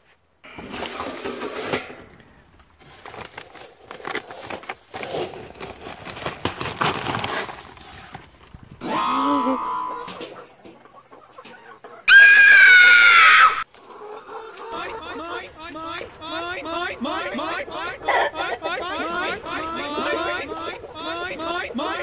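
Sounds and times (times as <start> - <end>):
plastic feed bag crinkling: 2.4 - 8.8
hen calling: 8.8 - 22.0.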